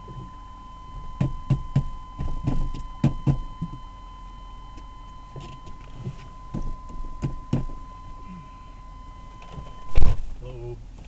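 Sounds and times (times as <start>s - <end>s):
steady high-pitched tone: 0.0s - 10.5s
dull knocks: 1.2s - 3.8s, 5.5s - 7.8s.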